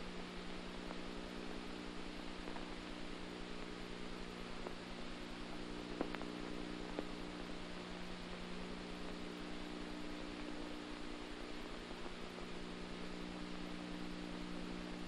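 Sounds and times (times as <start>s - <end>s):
electrical mains hum: 0.0s - 15.0s
faint clicks: 2.2s - 9.6s.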